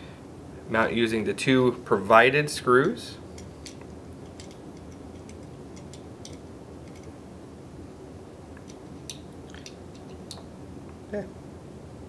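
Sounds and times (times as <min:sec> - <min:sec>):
small screws and metal parts clicking: 0:03.4 - 0:07.2.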